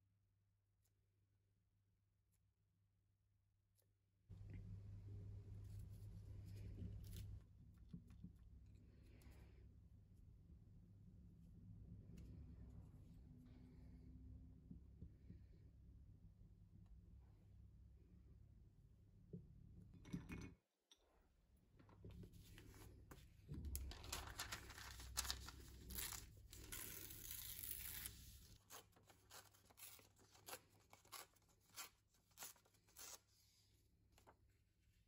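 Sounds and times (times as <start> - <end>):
paper rustling: 22.2 - 33.3
paper tearing: 23.8 - 33.3.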